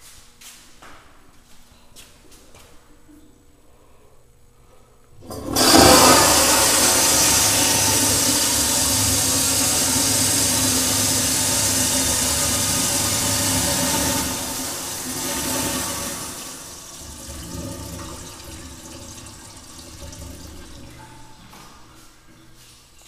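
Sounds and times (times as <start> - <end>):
toilet flushing: 5.2 - 22.7.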